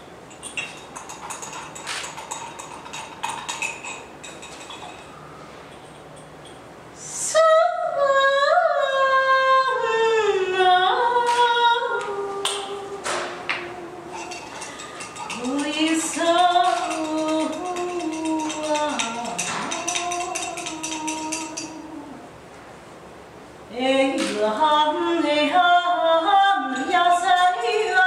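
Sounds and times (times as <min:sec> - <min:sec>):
woman singing long held notes: 0:07.0 - 0:14.2, 0:15.3 - 0:22.3, 0:23.7 - 0:28.0.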